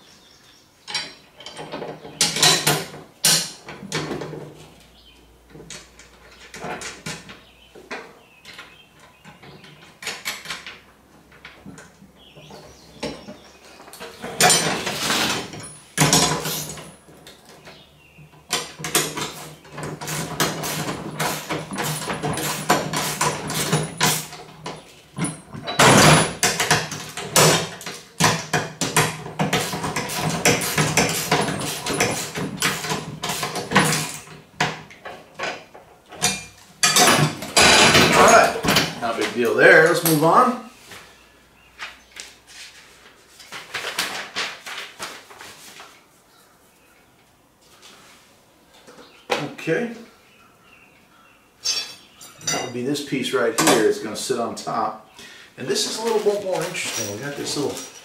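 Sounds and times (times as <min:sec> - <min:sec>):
metal parts clicking and scraping: 0:55.8 - 0:58.0.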